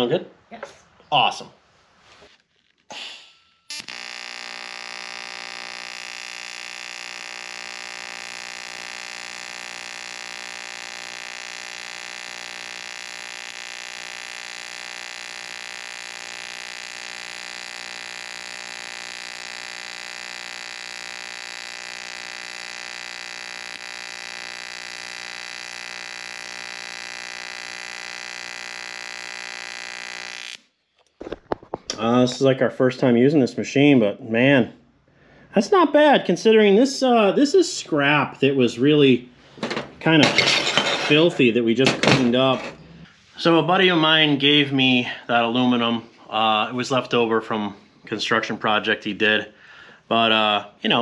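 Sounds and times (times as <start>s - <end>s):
welding arc buzz: 2.6s - 30.8s.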